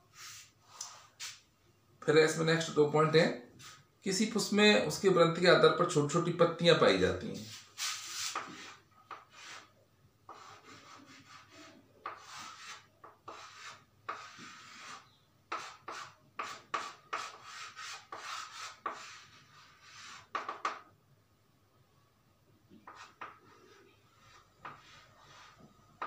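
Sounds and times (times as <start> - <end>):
chalk scratching on a chalkboard: 0.1 - 1.4, 3.6 - 3.8, 7.3 - 9.7, 10.3 - 20.8, 22.8 - 25.8.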